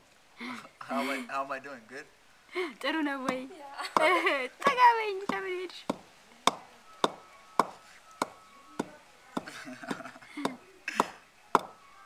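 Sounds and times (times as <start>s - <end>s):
pestle pounding in clay mortar: 5.2s - 11.8s.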